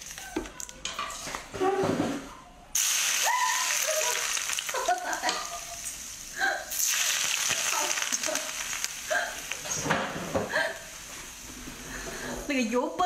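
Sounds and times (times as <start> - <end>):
hot oil sizzling: 2.7 - 12.6.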